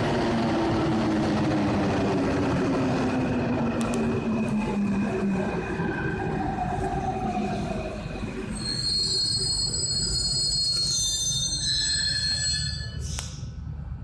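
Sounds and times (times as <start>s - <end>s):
high-pitched brake squeal: 8.5s - 13.5s.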